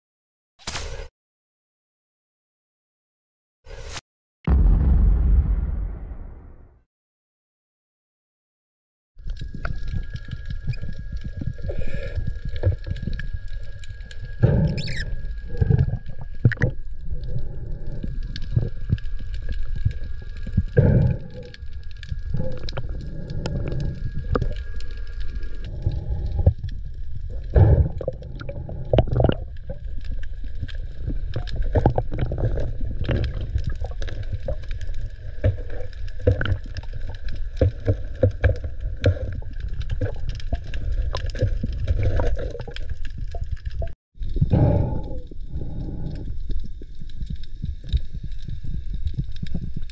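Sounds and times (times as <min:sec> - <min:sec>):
low underwater rumble: 0:04.5 - 0:06.7.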